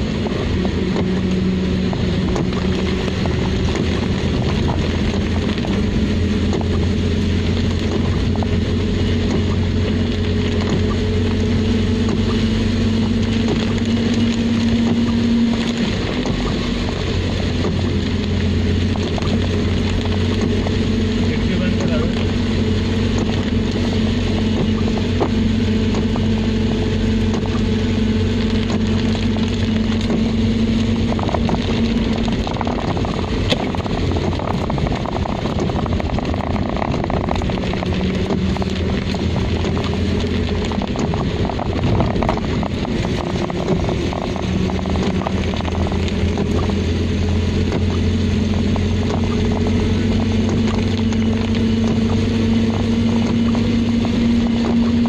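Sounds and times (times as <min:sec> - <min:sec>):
car engine running: 0:00.0 - 0:55.0
tyres hissing on wet road: 0:00.0 - 0:55.0.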